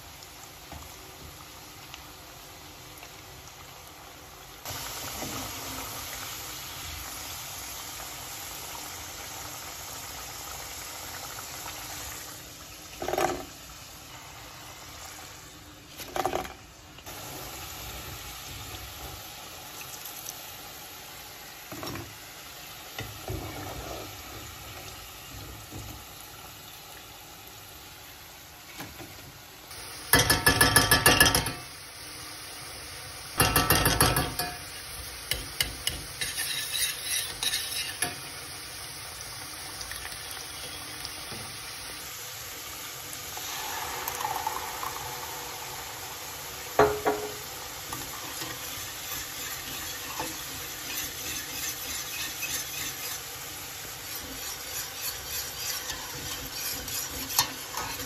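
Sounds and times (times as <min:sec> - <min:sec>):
potatoes sizzling in hot oil: 0:00.0 - 0:58.0
slotted spoon knocking on pan: 0:30.1 - 0:31.6, 0:33.4 - 0:34.7, 0:46.8 - 0:47.4
spoon clattering against saucepan: 0:30.1 - 0:31.7, 0:33.4 - 0:38.2.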